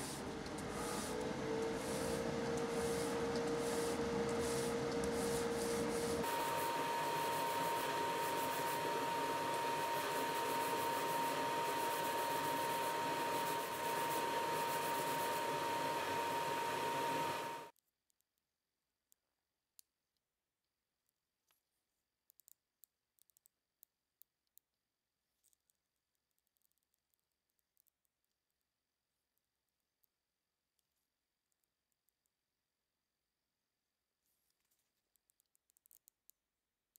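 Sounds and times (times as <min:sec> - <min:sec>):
wood rubbed on sandpaper: 0:00.0 - 0:01.2, 0:01.8 - 0:17.5
machine hum: 0:00.0 - 0:17.7.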